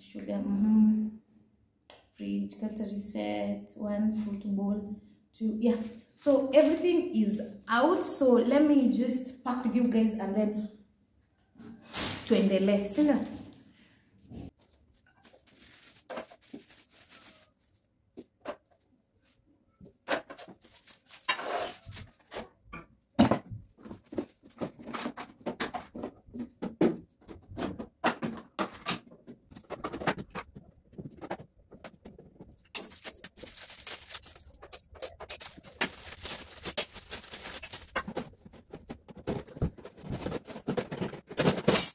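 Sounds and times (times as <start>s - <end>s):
plastic packaging crinkling: 11.9s - 13.5s, 14.9s - 17.8s, 20.4s - 22.3s, 32.8s - 41.1s.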